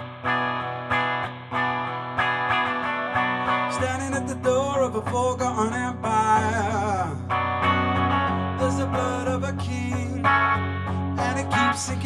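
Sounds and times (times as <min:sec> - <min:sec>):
electric guitar strumming: 0:00.0 - 0:12.0
man singing: 0:03.7 - 0:07.3, 0:08.6 - 0:12.0.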